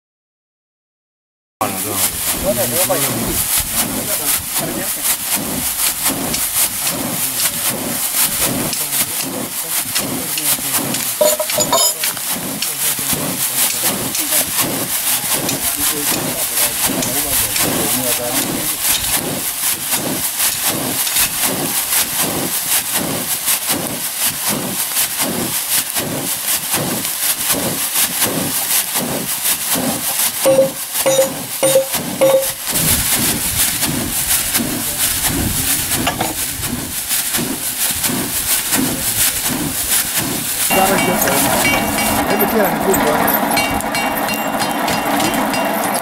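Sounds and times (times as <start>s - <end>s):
short beeps: 30.5s - 32.6s.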